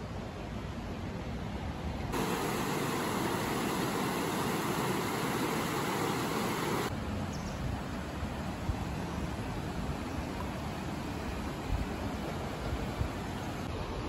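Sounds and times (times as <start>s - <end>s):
river rushing over rocks: 2.1s - 7.0s.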